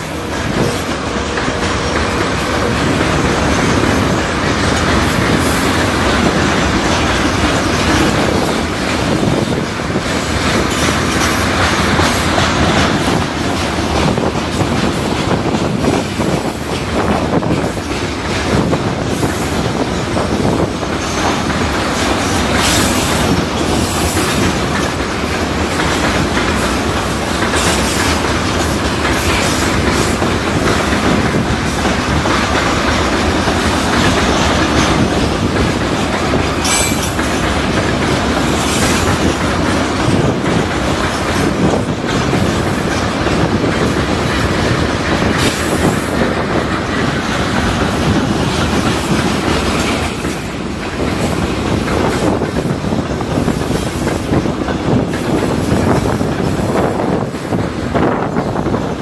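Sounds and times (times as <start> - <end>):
high wheel squeals: 0.0 - 5.6, 49.6 - 50.9
train wheels rumbling and clacking: 0.0 - 59.0
sharp metal clank: 36.6 - 37.3.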